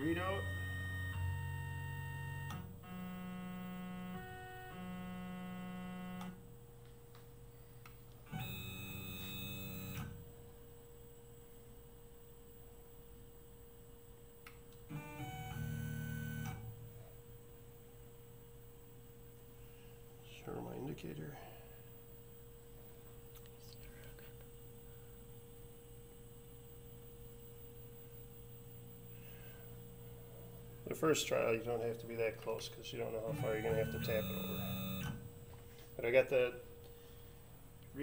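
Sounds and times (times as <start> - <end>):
stepper motors whining: 0.0 - 6.3, 33.1 - 35.3
electrical hum: 0.0 - 38.0.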